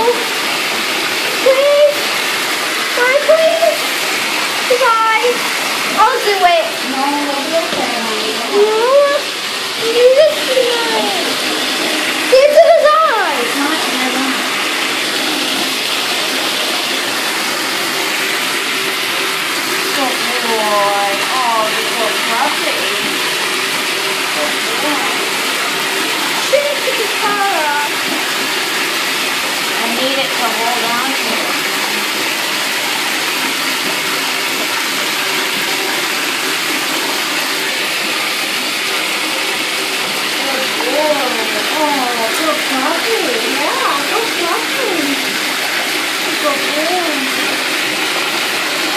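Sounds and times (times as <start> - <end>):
water running into bathtub: 0.0 - 48.9.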